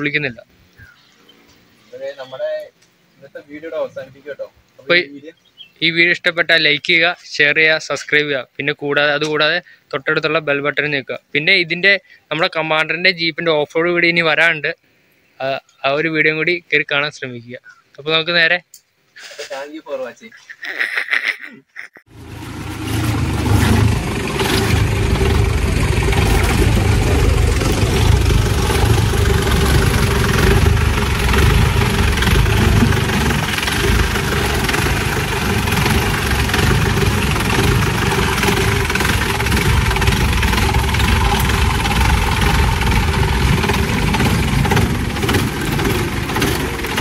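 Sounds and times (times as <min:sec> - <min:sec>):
diesel engine running: 0:22.1 - 0:47.0.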